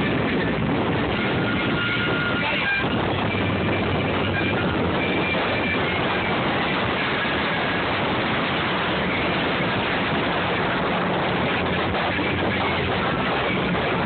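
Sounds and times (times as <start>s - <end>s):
churning wake water: 0.0s - 14.0s
low engine hum: 0.0s - 14.0s
wind rushing: 0.0s - 14.0s.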